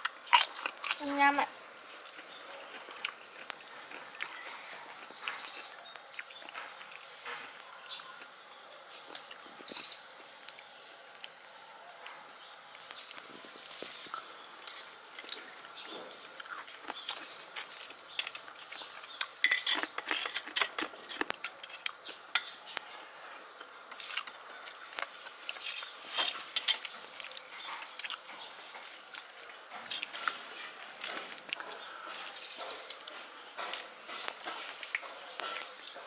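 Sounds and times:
spoons clinking on ceramic plates: 0:19.4 - 0:22.6, 0:26.1 - 0:26.9.

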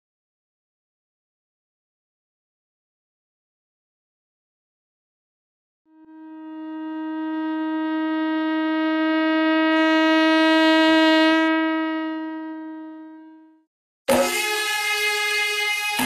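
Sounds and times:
long horn note: 0:05.9 - 0:16.0.

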